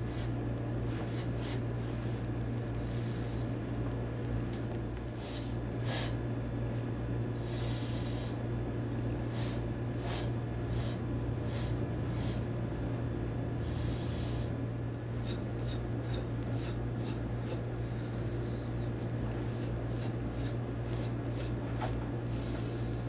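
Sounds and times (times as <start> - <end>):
sharp hissing exhalations: 7.4 - 8.4, 9.3 - 12.4, 19.5 - 23.0
long breaths: 9.3 - 12.4, 19.5 - 23.0.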